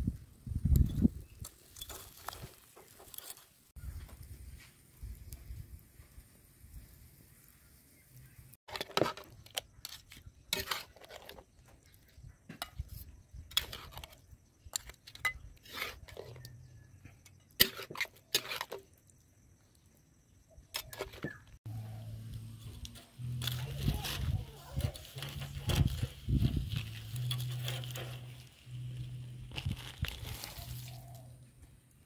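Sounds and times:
utensils clinking on plate and pot: 0:22.6 - 0:28.8.

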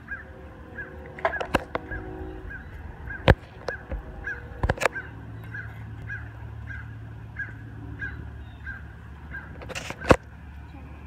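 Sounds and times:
bird calling: 0:00.0 - 0:11.0
low steady hum: 0:00.0 - 0:11.0.

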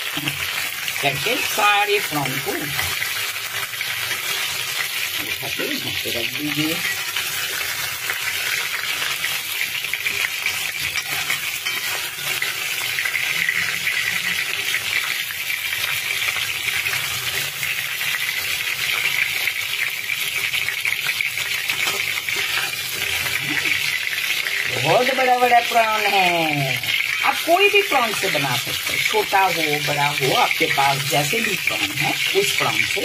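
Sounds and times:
prawns sizzling in hot oil: 0:00.0 - 0:33.0.

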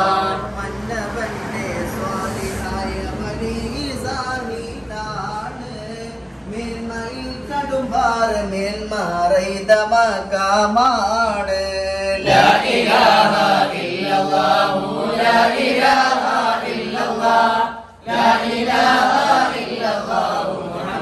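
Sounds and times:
men chanting together: 0:00.0 - 0:03.2, 0:12.2 - 0:21.0.

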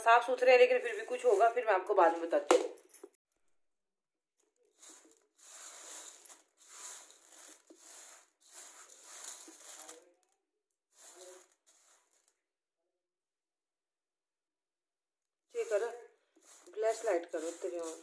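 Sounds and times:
seeds rattling on metal plate: 0:00.2 - 0:01.7, 0:04.7 - 0:10.2, 0:10.9 - 0:12.3, 0:15.6 - 0:18.0.

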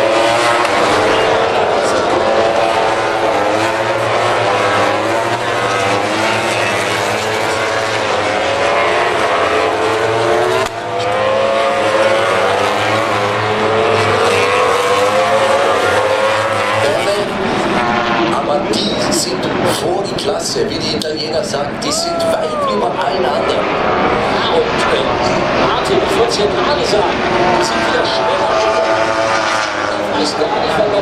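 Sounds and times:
racing motorcycle engines at high revs: 0:00.0 - 0:20.0, 0:22.6 - 0:31.0.

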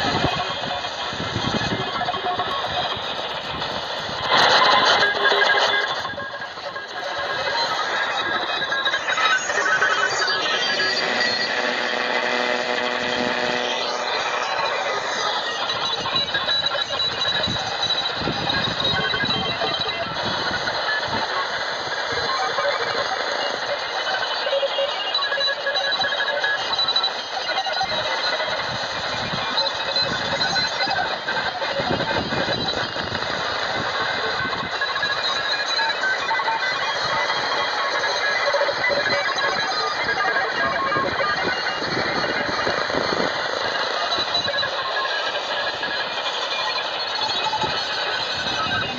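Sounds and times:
morse code beeps: 0:00.0 - 0:21.4
morse code tones: 0:00.0 - 0:48.9
shortwave radio hiss and static: 0:00.0 - 0:48.9.

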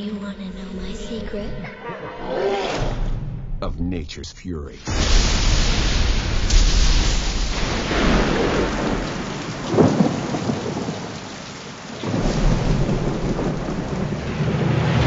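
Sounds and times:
deep rumbling thunder: 0:04.8 - 0:11.3, 0:12.0 - 0:15.0
sharp thunderclap: 0:04.8 - 0:11.4, 0:12.0 - 0:15.0
heavy rain pouring: 0:04.8 - 0:15.0.

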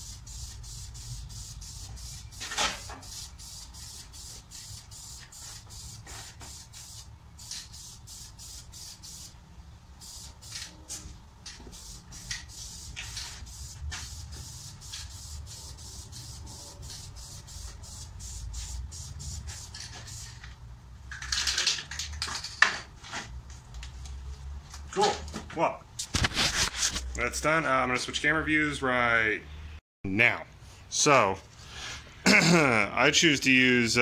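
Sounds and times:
aerosol spray can hissing: 0:00.0 - 0:09.4, 0:11.7 - 0:20.2.

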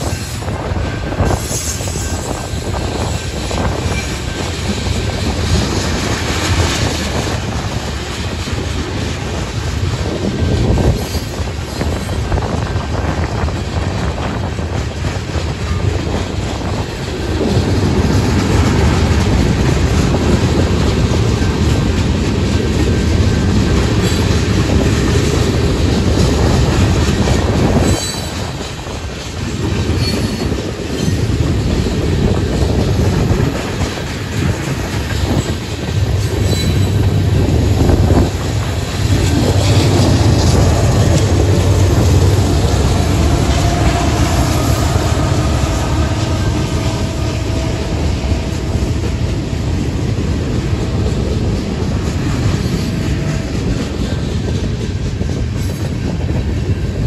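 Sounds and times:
diesel locomotive passing: 0:00.0 - 0:57.0
train wheels clacking on rails: 0:00.0 - 0:57.0
wind on microphone: 0:00.0 - 0:57.0
wheel squeal: 0:36.4 - 0:37.0.

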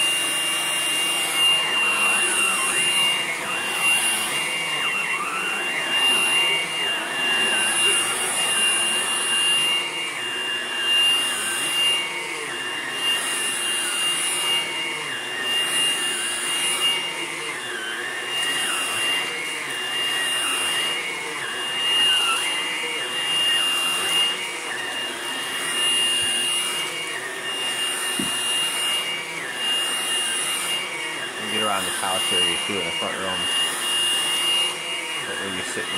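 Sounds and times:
vacuum cleaner on carpet: 0:00.0 - 0:35.9.

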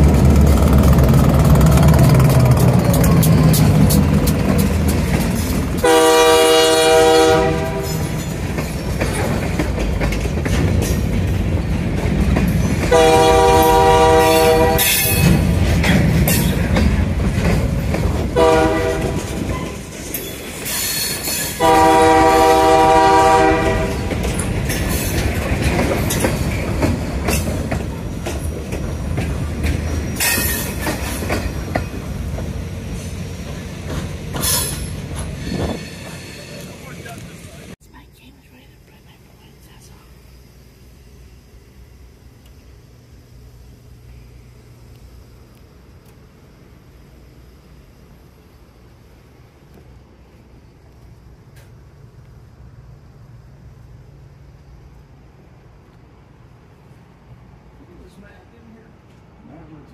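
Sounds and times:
train cars rumbling and clattering: 0:00.0 - 0:37.8
locomotive air horn blowing: 0:05.8 - 0:08.2, 0:12.9 - 0:15.3, 0:18.4 - 0:19.4, 0:21.6 - 0:24.1.

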